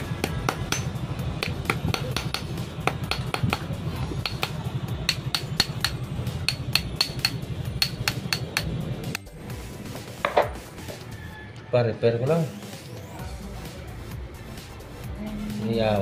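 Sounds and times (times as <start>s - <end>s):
hammer tapping steel part: 0.2s - 8.8s.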